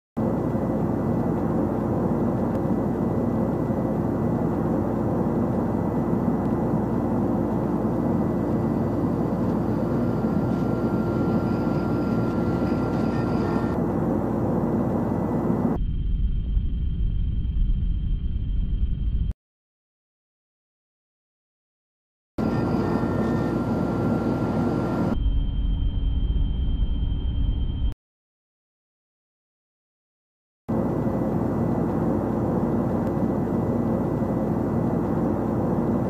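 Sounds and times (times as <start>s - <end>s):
high whine: 0.2s - 19.4s, 22.4s - 28.0s
low hum: 0.2s - 19.4s, 22.4s - 28.0s.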